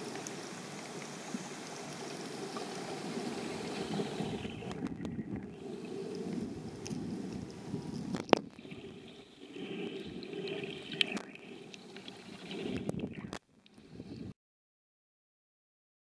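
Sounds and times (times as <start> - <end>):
underwater churning wash: 0.0 - 13.4
sharp clicks underwater: 0.0 - 13.9.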